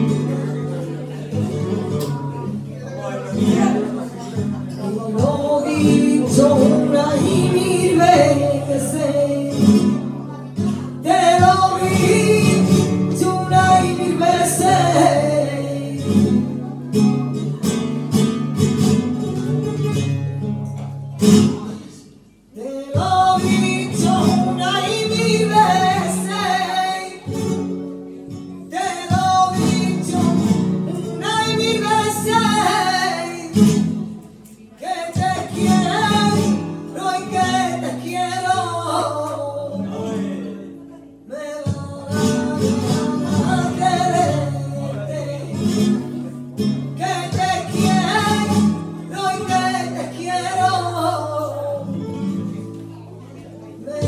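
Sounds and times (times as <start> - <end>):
flamenco guitar strumming: 0.0 - 54.0
woman singing flamenco: 3.3 - 20.2, 22.5 - 54.0.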